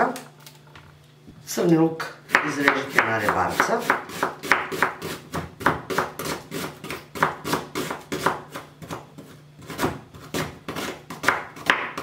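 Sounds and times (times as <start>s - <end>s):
knife chopping on wooden board: 2.3s - 12.0s.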